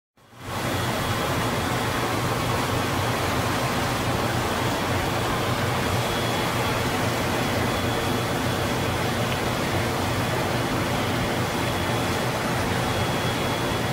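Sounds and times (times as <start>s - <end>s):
water rushing: 0.3s - 13.9s.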